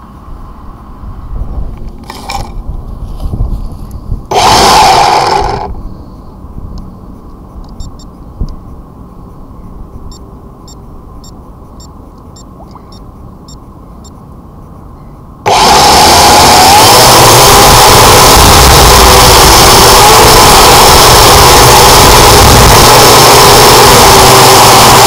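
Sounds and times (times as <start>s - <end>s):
drone propellers whirring: 4.3s - 5.9s, 15.5s - 25.0s
soft ticks: 7.6s - 8.6s, 10.1s - 14.2s.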